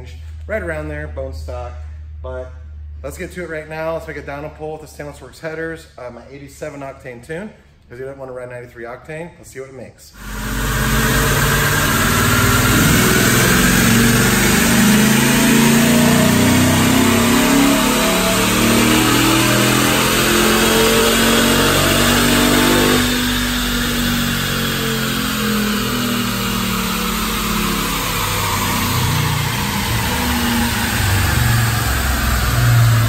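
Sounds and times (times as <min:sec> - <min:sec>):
engine revving on dyno: 0:10.2 - 0:33.0.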